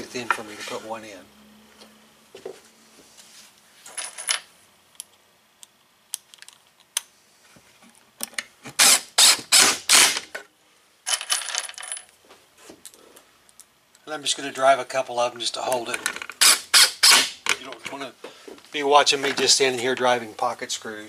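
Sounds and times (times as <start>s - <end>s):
cordless drill driving screw: 8.8s - 10.2s.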